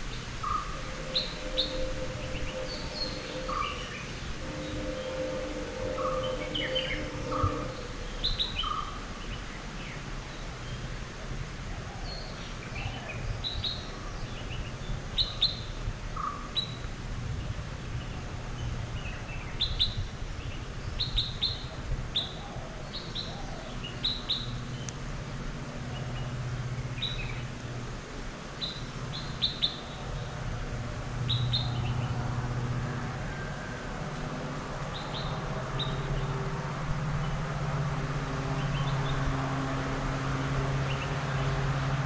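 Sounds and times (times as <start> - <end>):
faint low hum: 0.0 - 10.6
birds chirping: 0.0 - 10.9.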